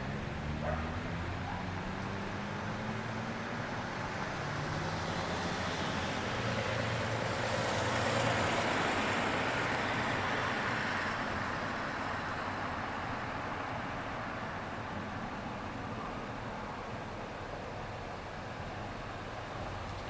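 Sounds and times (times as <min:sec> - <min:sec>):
vehicle passing: 0:00.0 - 0:11.2
low engine hum: 0:00.0 - 0:20.0.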